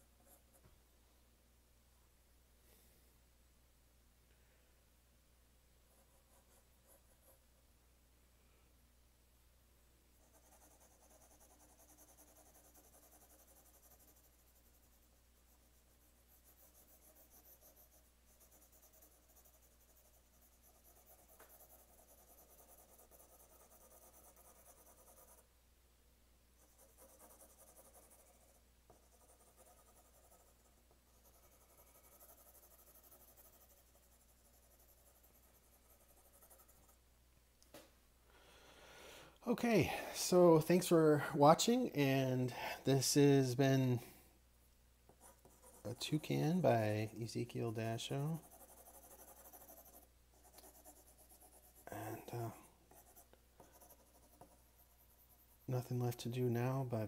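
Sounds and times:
pencil scratching on paper: 0:00.0 - 0:00.6, 0:05.9 - 0:07.4, 0:10.2 - 0:25.5, 0:26.6 - 0:37.0, 0:45.1 - 0:56.3.

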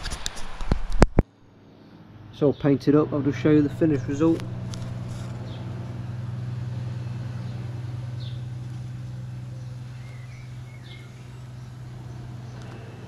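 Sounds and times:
low machine hum: 0:01.2 - 0:13.0.

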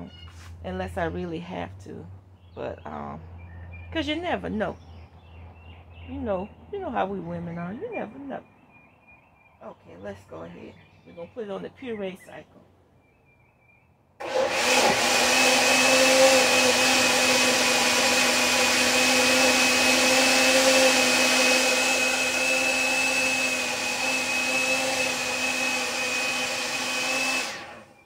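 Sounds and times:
blender motor whine: 0:14.2 - 0:28.0.

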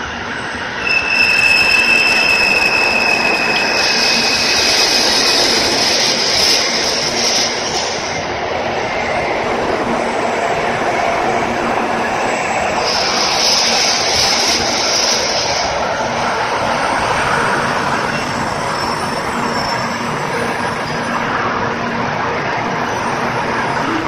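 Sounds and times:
train wheels rushing: 0:00.0 - 0:24.0
high hiss: 0:12.6 - 0:15.9.

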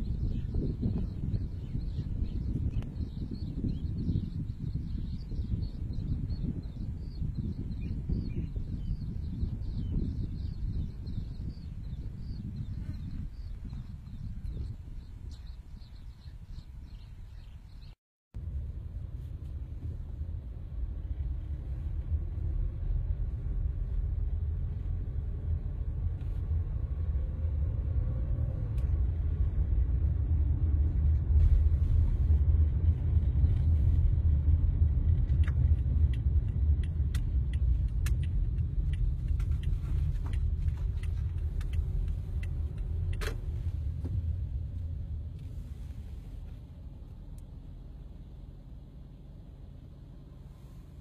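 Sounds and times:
car cabin rumble: 0:00.0 - 0:51.0
light clicks: 0:35.3 - 0:43.4.

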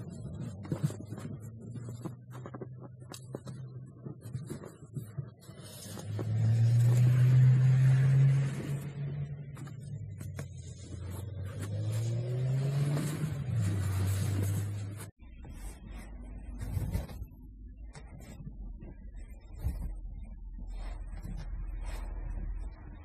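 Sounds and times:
snow scraped off car by hand: 0:09.7 - 0:15.1.

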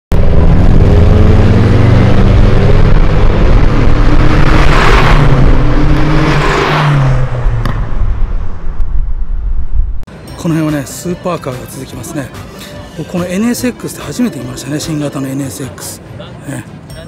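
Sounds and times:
car engine revving: 0:00.1 - 0:09.8.

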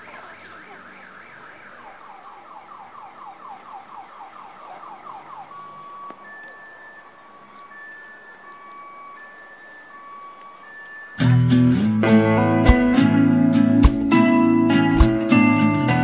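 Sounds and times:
electronic alarm siren sweeping: 0:00.0 - 0:12.0
low traffic hum: 0:00.0 - 0:16.0
high ringing notes: 0:05.4 - 0:16.0.

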